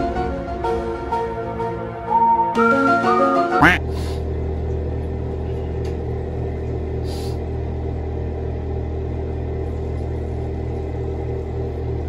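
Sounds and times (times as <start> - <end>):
steady low hum: 3.7 - 12.0.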